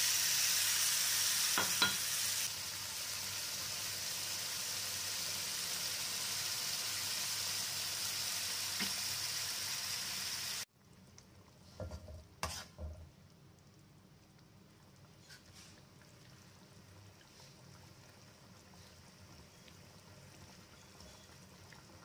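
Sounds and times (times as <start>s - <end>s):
paste sizzling in oil: 0.0s - 10.7s, 12.4s - 12.8s.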